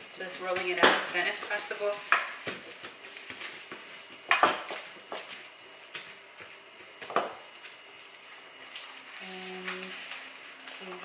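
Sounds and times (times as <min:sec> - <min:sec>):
rolling pin rolling dough: 0:00.0 - 0:11.0.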